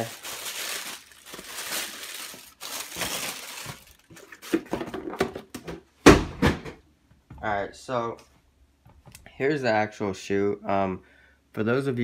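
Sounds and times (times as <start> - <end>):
tissue paper rustling: 0.0 - 4.7.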